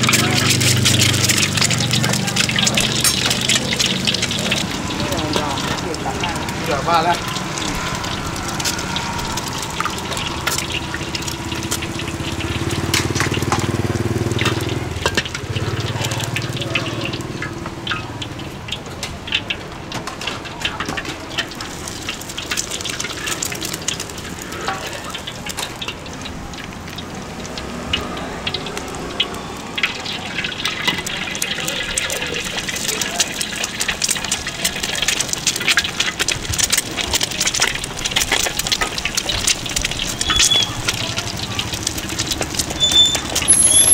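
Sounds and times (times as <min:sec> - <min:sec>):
metal ladle scraping wok: 0:00.0 - 0:17.9, 0:38.6 - 0:43.9
egg frying in hot oil: 0:00.0 - 0:43.9.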